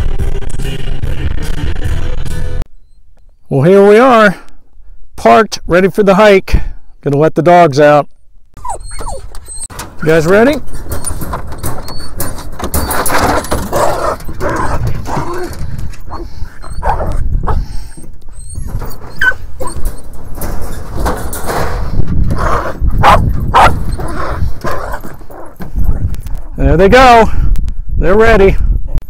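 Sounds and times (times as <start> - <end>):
metal crate door rattling: 9.7 - 16.0, 18.7 - 25.7
dogs barking: 13.0 - 15.5, 16.1 - 17.8, 22.4 - 25.6.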